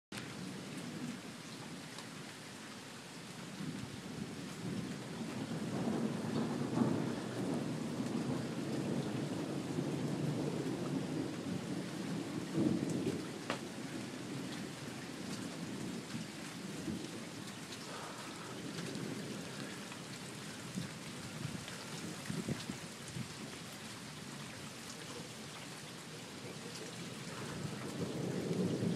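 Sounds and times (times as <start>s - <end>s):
steady rainfall: 0.1s - 28.9s
thunder rumbling: 3.6s - 23.3s, 26.6s - 28.9s.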